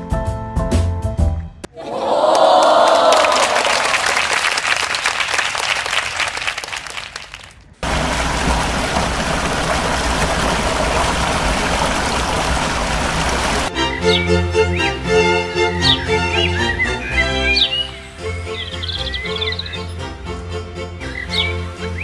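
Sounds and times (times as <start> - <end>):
water rushing down a weir channel: 7.8 - 13.7.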